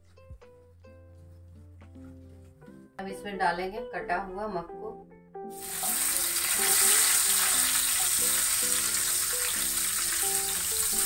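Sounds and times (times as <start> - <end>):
fruit sizzling in a frying pan: 5.5 - 11.0.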